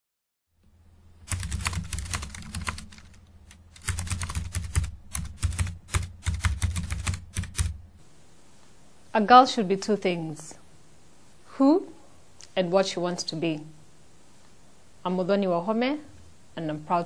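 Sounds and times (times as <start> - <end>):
rapid keyboard typing: 1.3 - 7.8.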